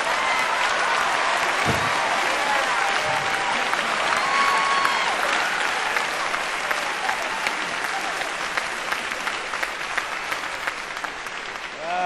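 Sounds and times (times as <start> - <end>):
cheering shouts: 0.0 - 8.6, 11.7 - 12.0
audience applauding: 0.0 - 12.0.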